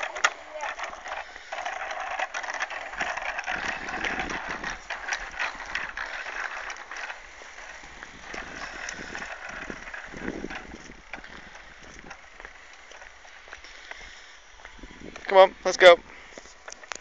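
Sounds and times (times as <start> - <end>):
bicycle rattling on concrete: 0.0 - 17.0.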